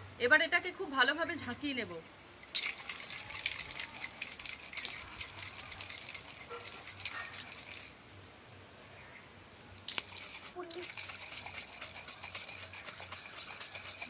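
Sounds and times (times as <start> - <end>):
ice rattling in shaken cocktail shaker: 2.4 - 8.0, 9.8 - 14.0.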